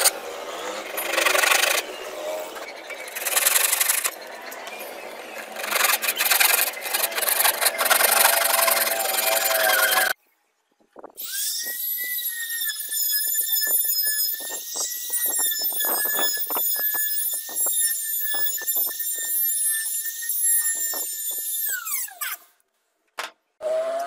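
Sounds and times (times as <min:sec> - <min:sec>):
router motor whine: 0:00.0 - 0:10.2
router bit rasping wood: 0:05.3 - 0:10.2.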